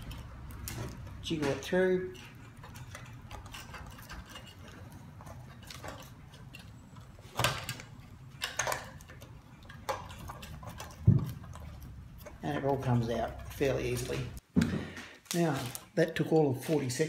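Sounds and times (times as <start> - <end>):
screwdriver scraping wood: 0.0 - 14.4.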